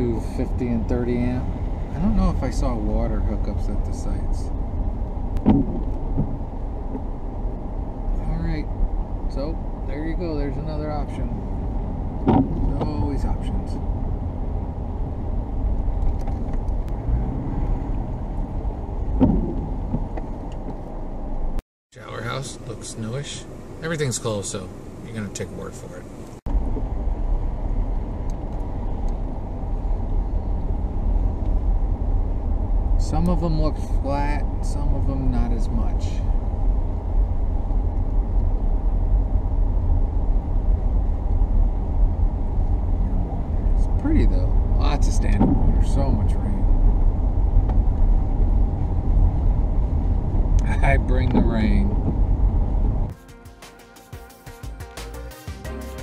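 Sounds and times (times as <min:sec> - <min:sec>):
vehicle engine and road rumble: 0:00.0 - 0:53.2.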